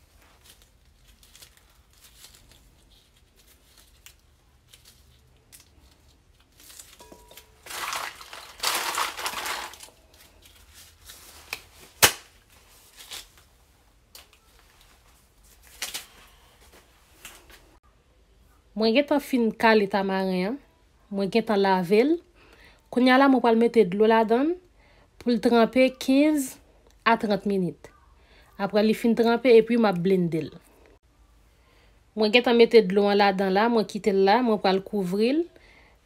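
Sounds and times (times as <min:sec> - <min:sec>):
dry pod shells cracking: 0:00.4 - 0:10.7.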